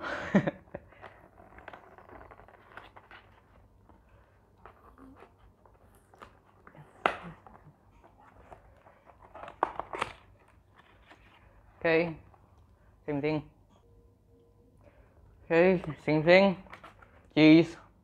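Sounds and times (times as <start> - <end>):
cardboard rustling: 0.8 - 12.3.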